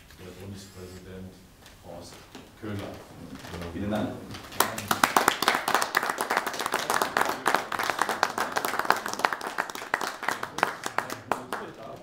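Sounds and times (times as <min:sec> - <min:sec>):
audience applauding: 0:04.3 - 0:12.0.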